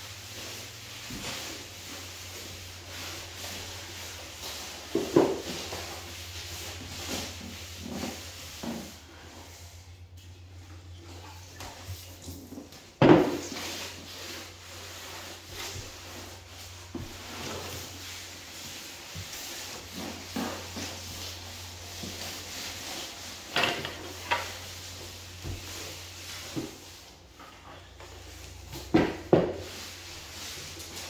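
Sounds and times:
rag wiping wooden floorboards: 0.0s - 31.0s
thump on wooden floor: 13.0s - 13.5s.

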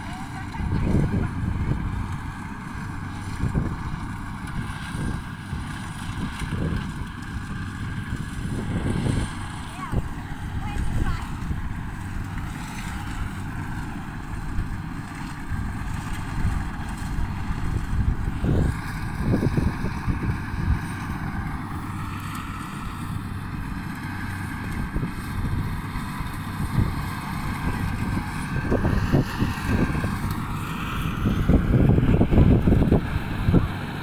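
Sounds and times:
combine harvester engine drone: 0.0s - 34.0s
wind buffeting microphone: 0.0s - 34.0s.

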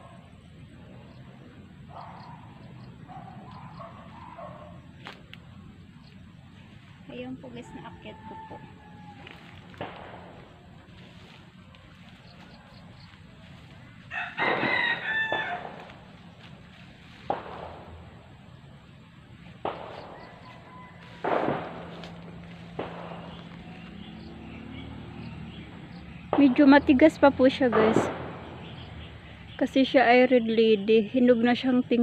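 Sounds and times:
rooster crowing: 7.6s - 9.7s, 14.0s - 16.0s, 19.9s - 24.3s
gunshots: 9.8s - 10.6s, 17.3s - 18.1s, 19.6s - 20.5s, 21.2s - 23.8s, 27.7s - 28.8s.

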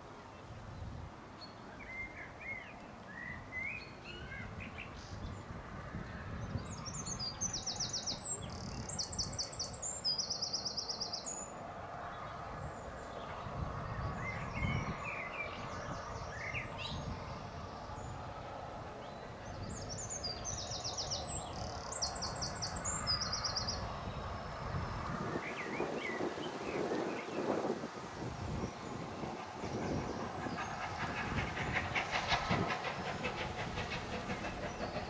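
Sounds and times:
steam locomotive rumble: 12.4s - 35.0s
songbirds singing: 19.0s - 27.5s, 28.6s - 35.0s.

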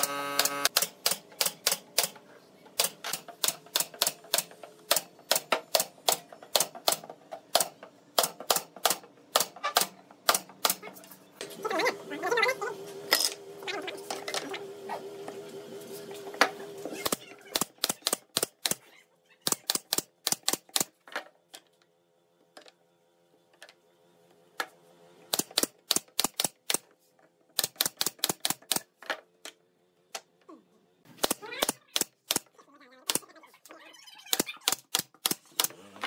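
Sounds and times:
pneumatic nail gun firing: 0.0s - 2.2s, 2.8s - 10.8s, 17.0s - 18.8s, 19.5s - 20.9s, 25.3s - 26.8s, 27.6s - 28.9s, 31.1s - 32.5s, 34.3s - 35.8s.

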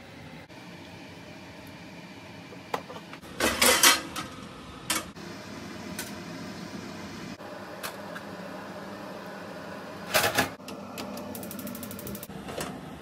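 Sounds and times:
utensils clattering against dishes: 3.4s - 4.3s.

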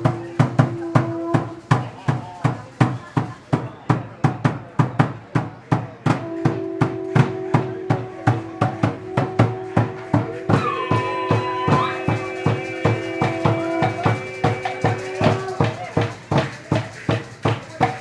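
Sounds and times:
drum beaten steadily: 0.0s - 18.0s
held pitched note: 6.3s - 15.7s.

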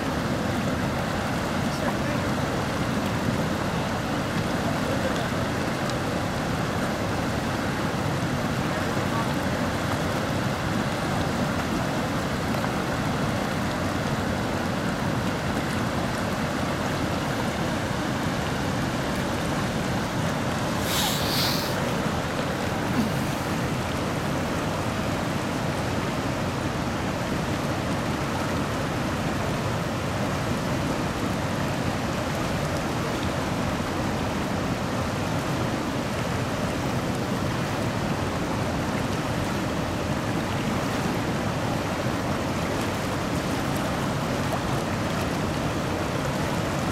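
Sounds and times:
river rapids rushing: 0.0s - 46.9s
brief high hiss: 20.7s - 21.9s.

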